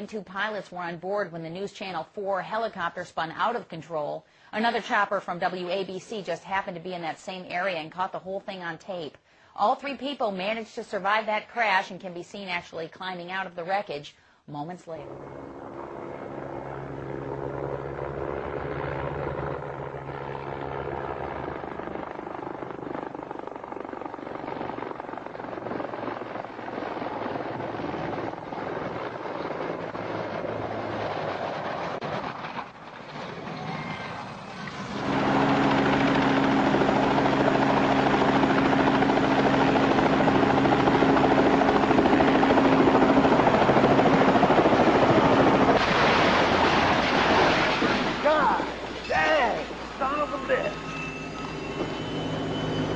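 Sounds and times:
small helicopter hovering low: 14.8 - 47.2, 48.0 - 52.9
helicopter rotor and engine: 14.9 - 52.9.

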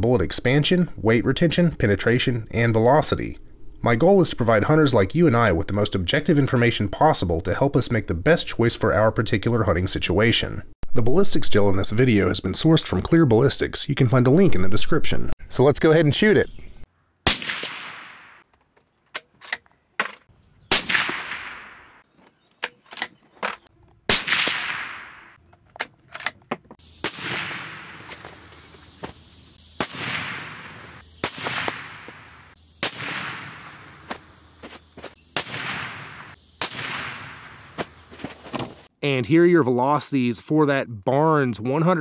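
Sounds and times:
distant gunshots with long echo: 17.3 - 18.4, 20.7 - 22.0, 24.1 - 25.4, 27.0 - 28.1, 29.8 - 34.0, 35.4 - 37.7
suppressed rifle shots: 17.3 - 18.4, 20.7 - 22.0, 24.1 - 25.4, 27.0 - 28.0, 29.8 - 32.1, 32.8 - 33.8, 35.4 - 37.5.

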